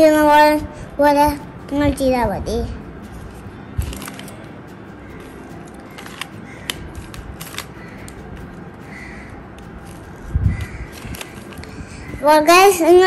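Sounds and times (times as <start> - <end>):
plastic puzzle clicking: 6.0 - 8.2.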